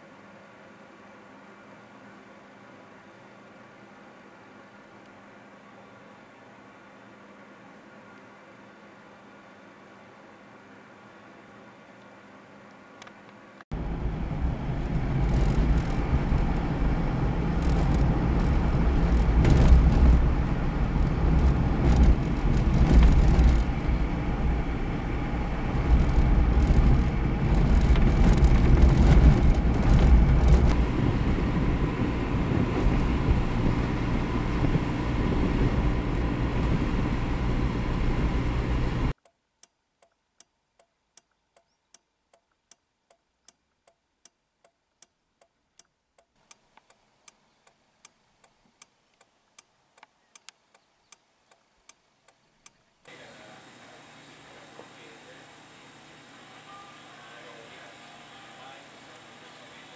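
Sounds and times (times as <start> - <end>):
car engine and road rumble: 12.5 - 39.2
hazard flasher relay ticking: 39.2 - 53.2.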